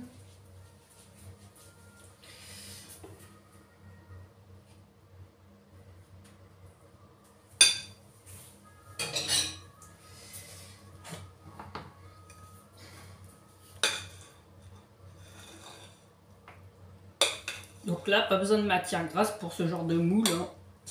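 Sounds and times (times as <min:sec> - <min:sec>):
cutlery clinking on glass bowl: 0:09.0 - 0:09.7, 0:13.8 - 0:14.2.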